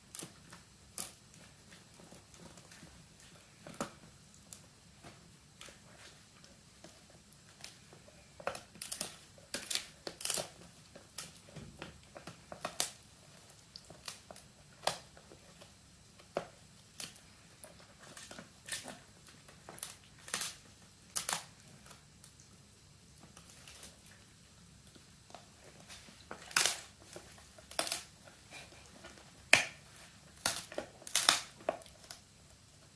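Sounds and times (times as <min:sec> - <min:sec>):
dog gnawing crunches: 0:08.7 - 0:11.5.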